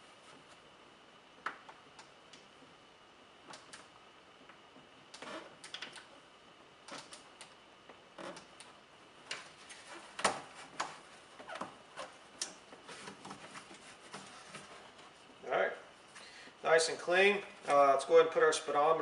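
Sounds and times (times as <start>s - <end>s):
faint clicks and taps: 3.4s - 6.1s.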